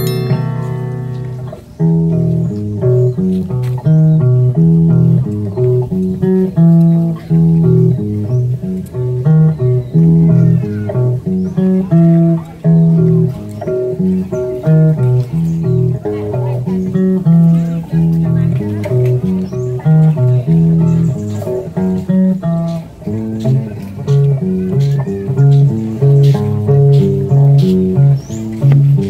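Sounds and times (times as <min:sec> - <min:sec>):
ringing guitar chord: 0:00.0 - 0:01.5
bass line: 0:00.0 - 0:29.0
plucked guitar melody: 0:00.0 - 0:29.0.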